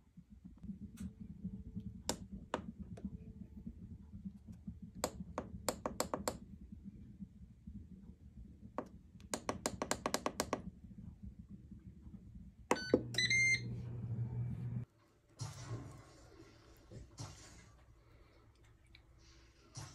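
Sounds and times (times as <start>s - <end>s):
fan humming: 0.0s - 14.9s
beep: 12.7s - 13.6s.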